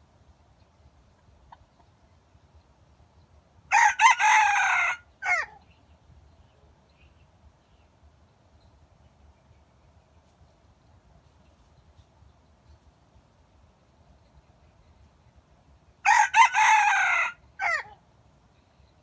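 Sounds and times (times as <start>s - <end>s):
rooster crowing: 3.7s - 5.6s, 16.0s - 18.0s.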